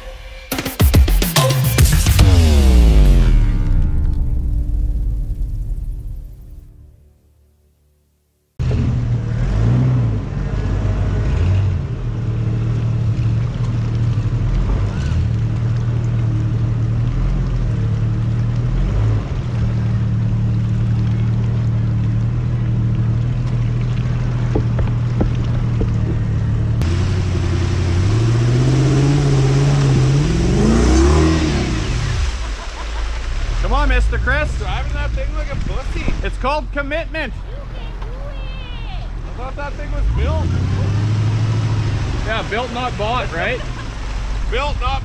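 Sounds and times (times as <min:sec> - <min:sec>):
background music: 0:00.0 - 0:07.4
off-road engine revving under load: 0:01.8 - 0:03.7, 0:08.6 - 0:13.3, 0:16.3 - 0:20.8, 0:24.4 - 0:32.6, 0:39.1 - 0:45.0
engine running under load: 0:08.6 - 0:38.2
sharp knocks: 0:24.4 - 0:26.8.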